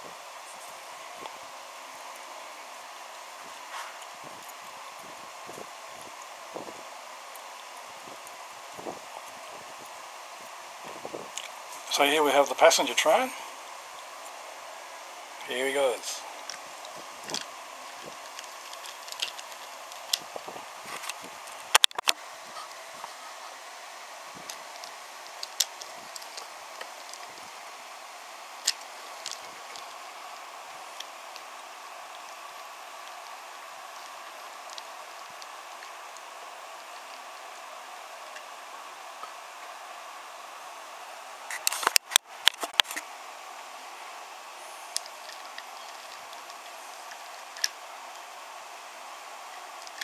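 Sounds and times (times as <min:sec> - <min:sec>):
steady background hiss: 0:00.0 - 0:50.0
wooden toy train clicking: 0:17.3 - 0:20.2.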